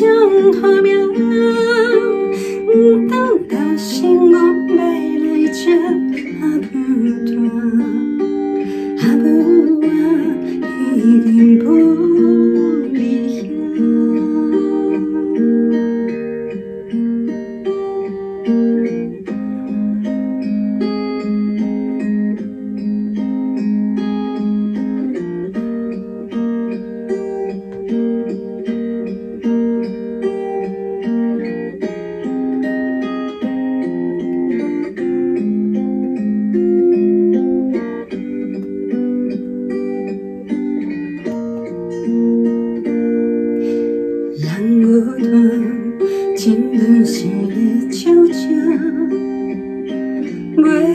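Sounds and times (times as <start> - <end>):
woman singing: 0.0 - 16.7, 44.2 - 50.9.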